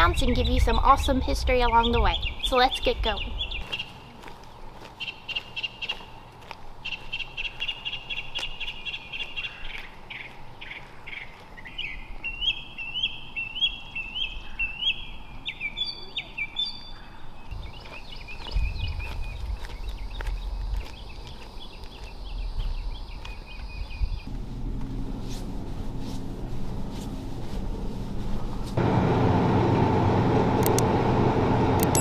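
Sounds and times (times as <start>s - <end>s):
birds singing: 0.0s - 24.3s.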